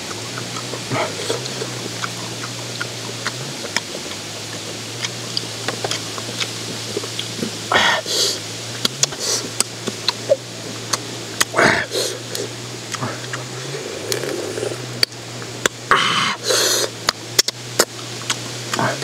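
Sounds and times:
sucking slurps: 0.0 - 15.2, 15.9 - 19.0
low hum: 0.0 - 19.0
snail shells clicking: 14.0 - 15.8.

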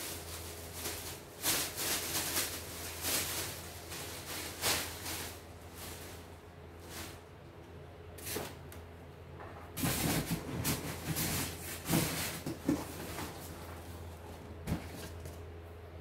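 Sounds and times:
cardboard and plastic wrap rustling: 0.0 - 7.3, 9.7 - 15.4.

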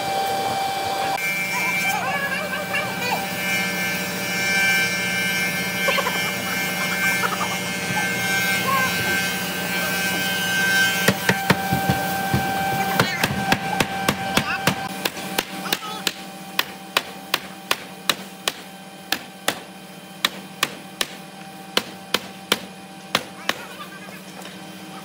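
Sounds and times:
steady machine hum: 0.0 - 25.0
hammer knocking on wooden block: 11.1 - 19.6.

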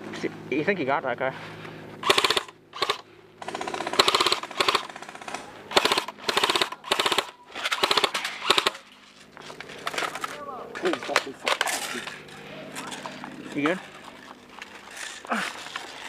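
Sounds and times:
airsoft guns firing rapid bursts: 2.0 - 8.8.

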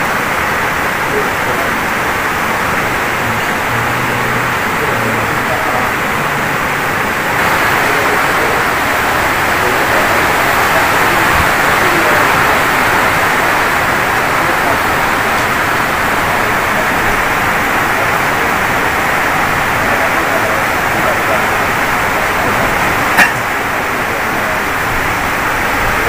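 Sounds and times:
loud rushing noise: 0.0 - 26.0.

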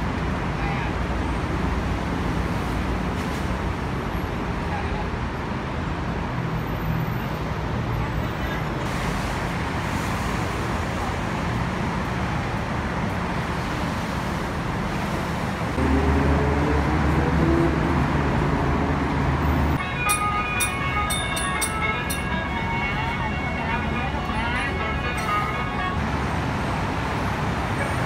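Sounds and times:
road traffic noise: 0.0 - 28.0
large vehicle engine rumbling: 7.8 - 28.0.

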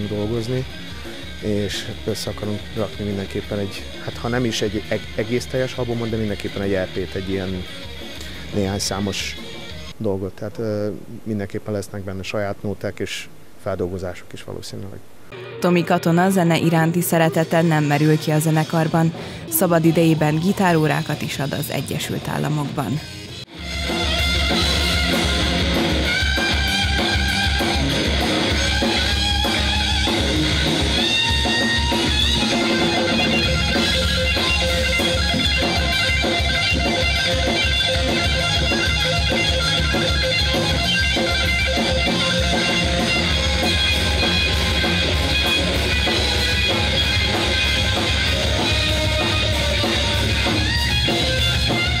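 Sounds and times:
drum kit beat: 0.0 - 9.9, 15.3 - 22.9, 23.5 - 52.0
bass guitar: 0.0 - 10.0, 23.3 - 52.0
electric guitar lead lines: 0.0 - 11.4, 14.8 - 52.0.

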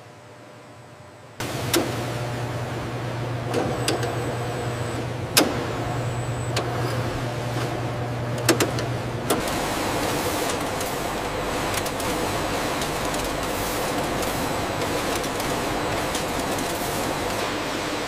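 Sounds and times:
conveyor line whirring: 0.0 - 18.0
electric motor hum: 0.7 - 18.0.

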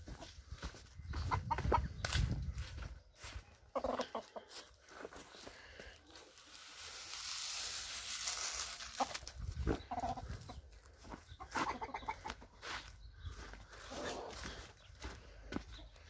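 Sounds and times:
chickens clucking: 0.0 - 5.5, 9.0 - 16.0.

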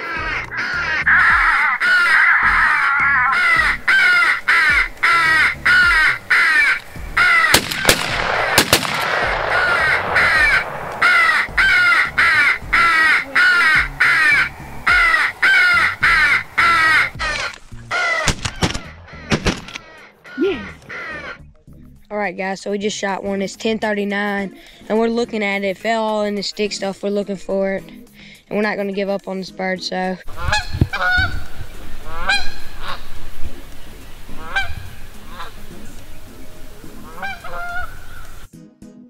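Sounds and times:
crows cawing: 0.0 - 21.5, 30.3 - 33.3, 34.3 - 35.8, 37.0 - 38.5
shotgun blasts: 7.4 - 12.5, 18.2 - 19.9.

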